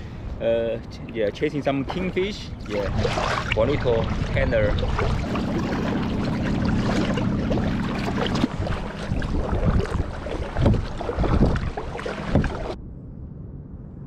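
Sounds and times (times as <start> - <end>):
wind and water rushing: 0.0 - 12.8
kayak paddle splashes: 1.8 - 12.8.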